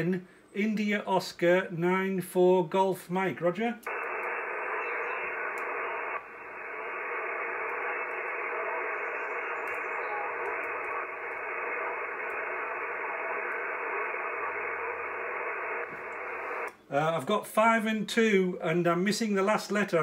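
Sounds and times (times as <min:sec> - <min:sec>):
radio band noise hissing: 0:00.0 - 0:20.0.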